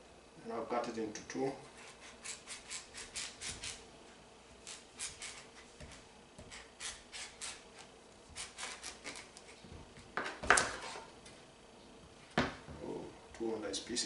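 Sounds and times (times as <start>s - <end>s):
knife sawing through squash: 1.7s - 3.8s, 4.7s - 7.6s, 8.3s - 9.4s.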